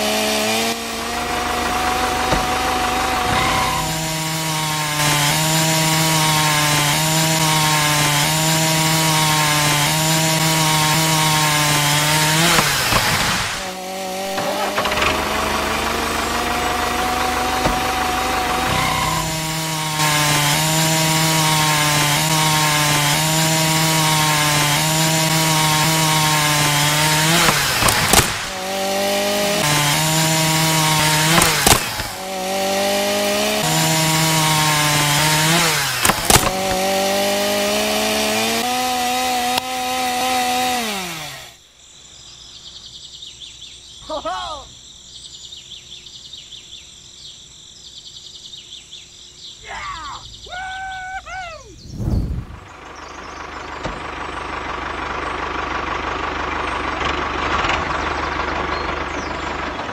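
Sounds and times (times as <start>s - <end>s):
small electric motor whining: 0.0s - 6.5s, 12.4s - 22.7s
lower rising whine: 51.7s - 54.0s.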